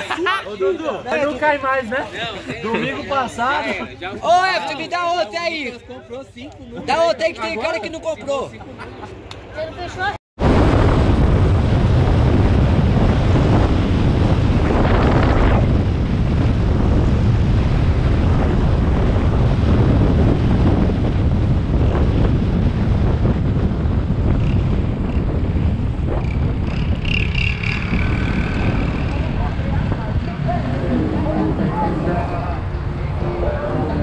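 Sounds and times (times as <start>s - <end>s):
road noise: 0.0s - 34.0s
wind buffeting microphone: 9.8s - 34.0s
motorcycle engine: 20.2s - 34.0s
high-pitched squeal: 26.1s - 34.0s.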